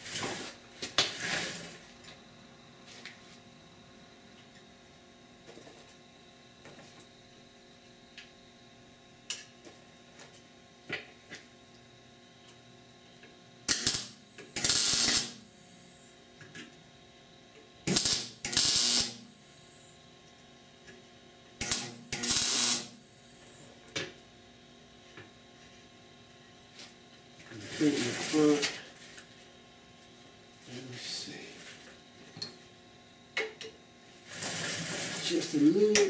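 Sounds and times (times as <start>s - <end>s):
welding arc bursts: 13.7s - 15.5s, 17.8s - 19.2s, 21.6s - 23.0s, 27.6s - 28.7s, 34.2s - 35.6s.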